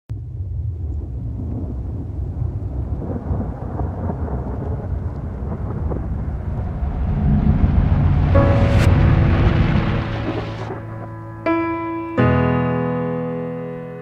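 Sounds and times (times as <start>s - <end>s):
deep thunder-like rumble: 0.1s - 11.8s
rain hiss: 0.8s - 11.5s
sustained piano-like tones: 6.0s - 14.0s.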